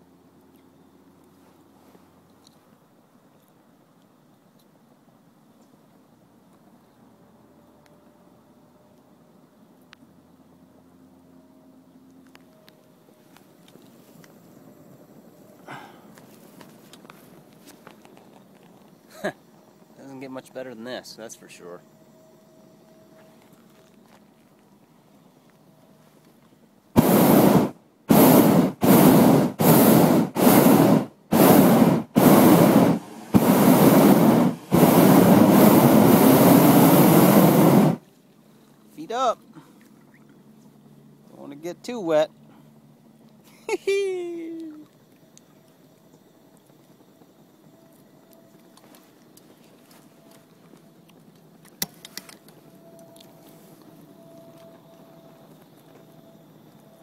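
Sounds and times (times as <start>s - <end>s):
faint steady hush: 12.5s - 41.5s
propane burner blasts: 26.9s - 38.0s.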